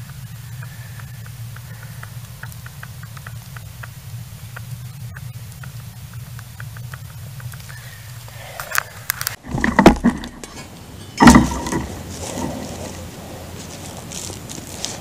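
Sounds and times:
handling knocks and rustling: 8.7s - 15.0s
shovel crunching into soil: 9.3s - 15.0s.

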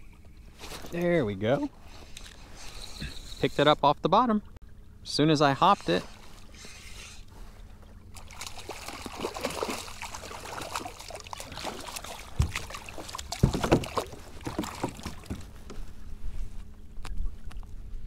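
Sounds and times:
fish splashing at water surface: 8.1s - 15.5s
knocks against kayak hull: 12.3s - 15.8s.

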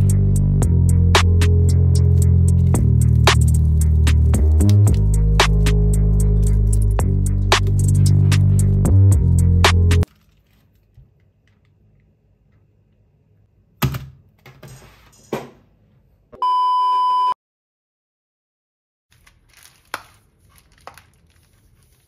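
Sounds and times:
bubble wrap rustling: 2.0s - 8.8s, 10.0s - 11.6s, 19.1s - 22.0s
electronic censor bleep: 16.4s - 17.4s.

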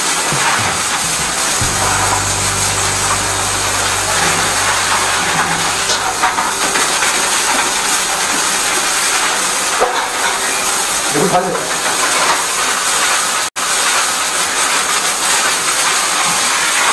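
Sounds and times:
low hum: 0.4s - 11.2s.

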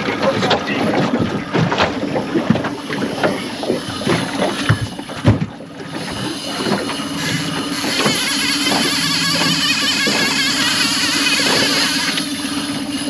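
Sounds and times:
outboard motor running: 0.0s - 13.0s
knocks on aluminium boat: 0.2s - 5.6s.

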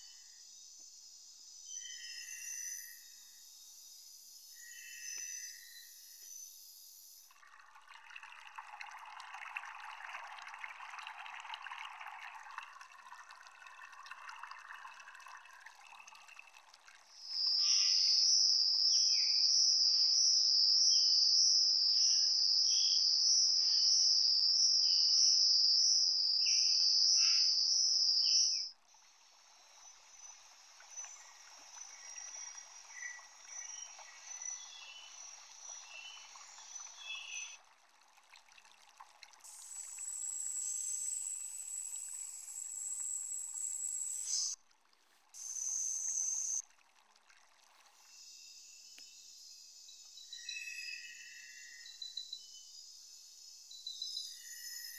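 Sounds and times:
short chirping calls: 17.2s - 28.7s
high insect trill: 17.2s - 37.6s, 39.5s - 44.6s.

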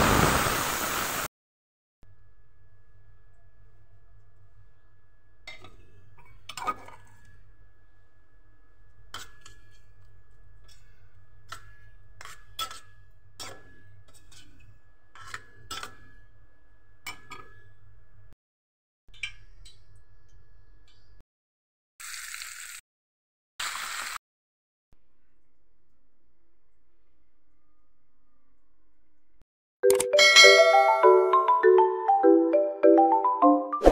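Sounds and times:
chicken sizzling in oil: 0.0s - 1.3s, 22.0s - 22.8s, 23.6s - 24.2s
metal spoon scraping steel bowl: 5.5s - 7.3s, 9.1s - 16.1s.

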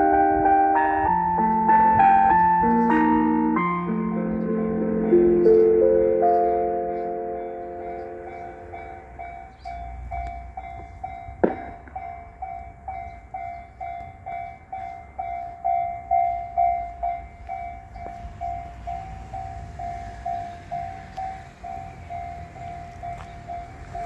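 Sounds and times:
level crossing warning bell dinging: 0.0s - 24.0s
sharp knock: 11.4s - 12.1s.

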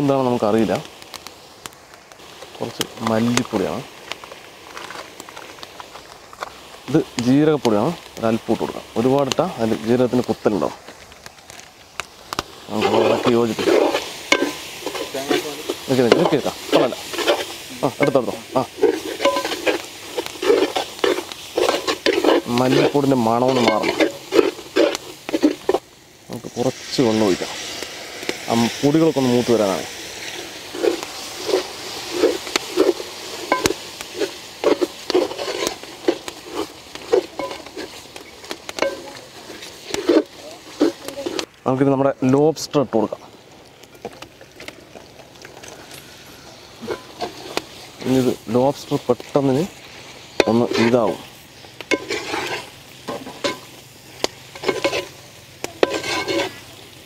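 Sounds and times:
light sizzle: 0.0s - 57.0s
ladle scraping a metal pot: 12.8s - 25.8s, 30.7s - 41.5s, 51.9s - 53.7s, 54.5s - 55.2s, 55.8s - 56.6s.

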